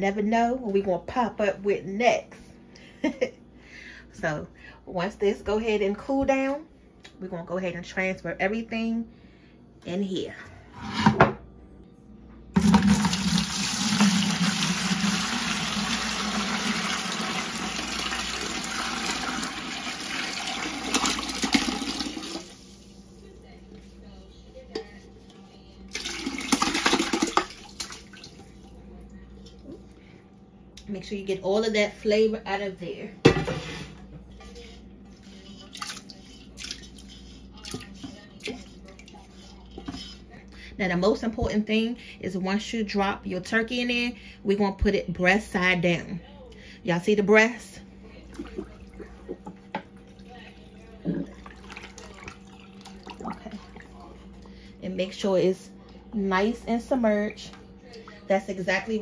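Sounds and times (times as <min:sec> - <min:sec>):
liquid pouring into bucket: 0:12.6 - 0:22.7, 0:25.9 - 0:28.5, 0:51.2 - 0:53.8
brine sloshing in bucket: 0:34.6 - 0:39.2, 0:51.2 - 0:54.3.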